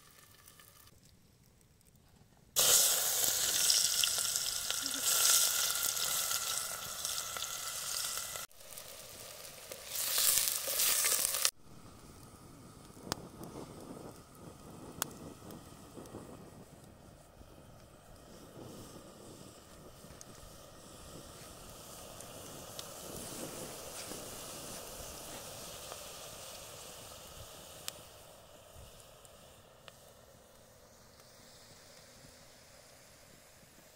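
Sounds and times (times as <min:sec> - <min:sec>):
onion sizzling in a pot: 0:00.0 - 0:00.9, 0:02.6 - 0:33.9
oil popping: 0:02.6 - 0:11.5.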